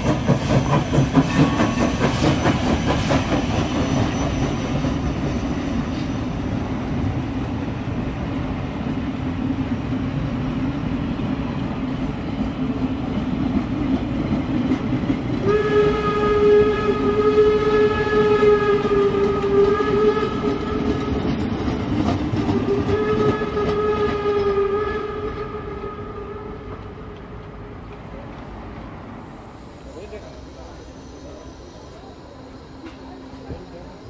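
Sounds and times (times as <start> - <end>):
train coaches rumbling on rails: 0.0 - 34.0
steam locomotive whistle: 15.4 - 27.0.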